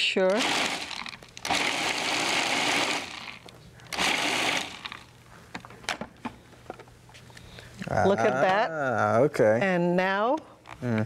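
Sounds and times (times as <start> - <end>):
food processor chopping: 0.3 - 3.4, 4.0 - 5.0.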